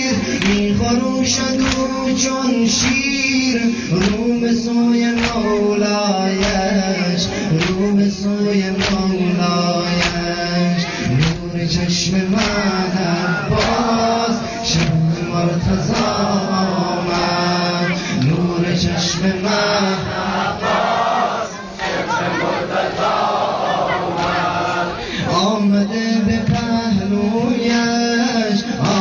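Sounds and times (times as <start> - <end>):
men chanting in unison: 0.0 - 29.0
sharp beats: 5.1 - 18.4.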